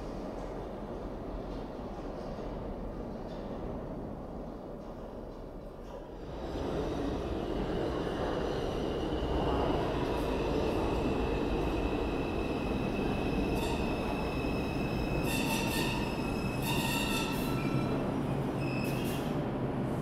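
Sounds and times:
subway train wheels rumbling: 0:00.0 - 0:20.0
high metallic squeal: 0:15.1 - 0:18.0, 0:18.6 - 0:19.3.

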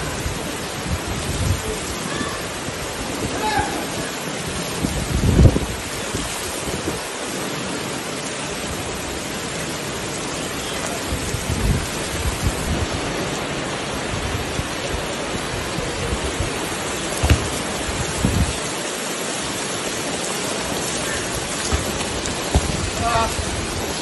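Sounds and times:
heavy rain pouring: 0:00.0 - 0:24.0
dull low thumps: 0:17.2 - 0:18.6, 0:21.6 - 0:23.9.

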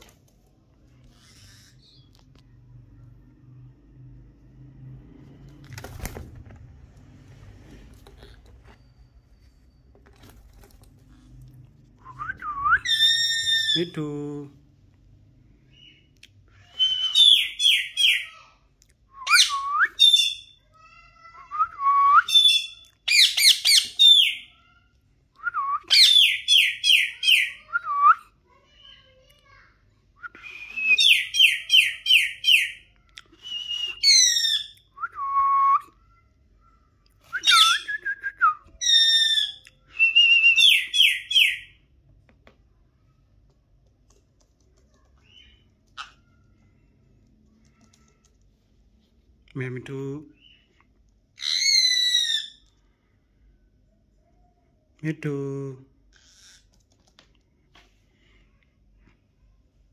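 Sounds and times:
parakeets calling shrilly: 0:22.3 - 0:24.6, 0:40.3 - 0:41.8, 0:51.4 - 0:52.6.

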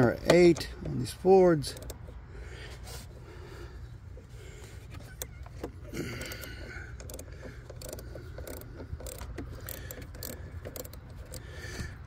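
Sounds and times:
socket ratchet clicking: 0:01.6 - 0:02.2, 0:04.9 - 0:12.0.

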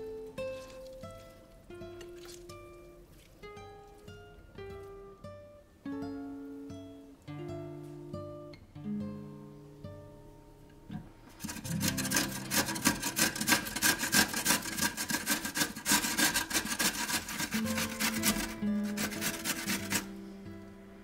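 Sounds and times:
acoustic guitar music: 0:00.0 - 0:21.0
potato grated on metal grater: 0:11.4 - 0:20.2.

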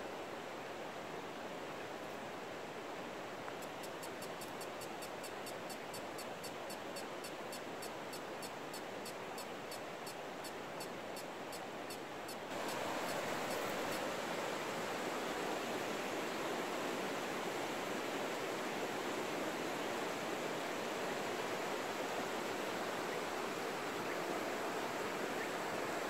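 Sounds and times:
river rushing: 0:00.1 - 0:26.0
rapid high ticks: 0:03.5 - 0:14.0.

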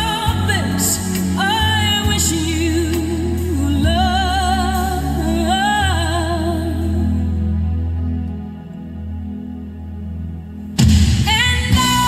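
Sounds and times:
person singing with vibrato: 0:00.0 - 0:08.2, 0:11.2 - 0:12.0
deep bass: 0:00.0 - 0:12.0.

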